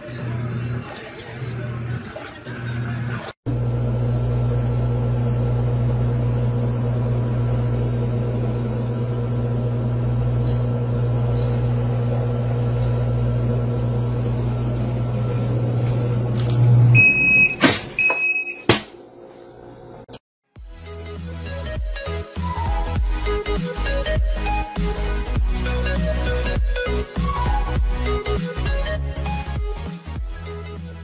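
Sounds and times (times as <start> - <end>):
washing machine motor humming: 0.0 - 20.2.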